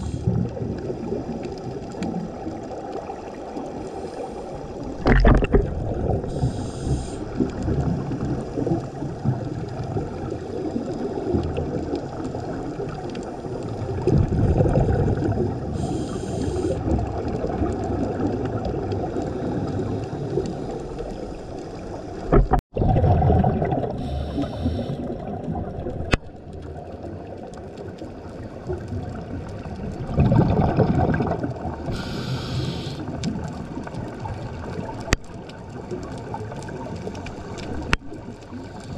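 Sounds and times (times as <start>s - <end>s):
exhaled bubbles rumbling: 0.0s - 38.9s
underwater wash: 0.0s - 38.9s
regulator inhalation hiss: 6.3s - 7.4s, 15.8s - 16.8s, 24.0s - 25.0s, 31.9s - 33.2s.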